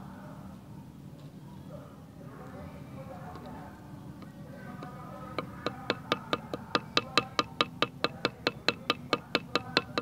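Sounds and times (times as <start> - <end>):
stone pounding leaves: 5.4 - 10.0.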